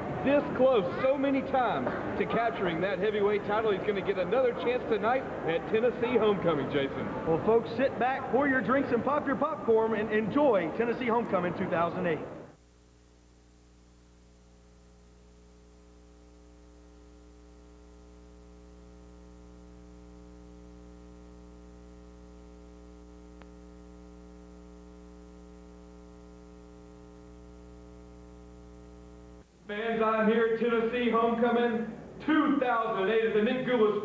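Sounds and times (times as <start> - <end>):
electrical mains hum: 0.0 - 34.0
faint click: 23.4 - 23.6.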